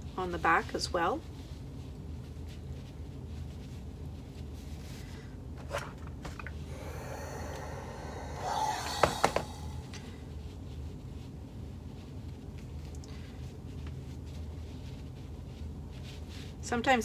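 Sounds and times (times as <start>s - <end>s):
steam iron hissing: 6.7s - 10.1s.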